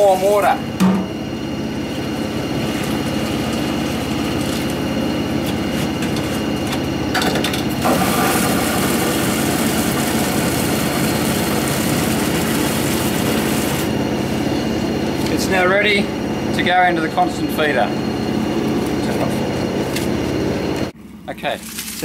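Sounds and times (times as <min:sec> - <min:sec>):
tap water filling watering can: 0:07.8 - 0:13.8.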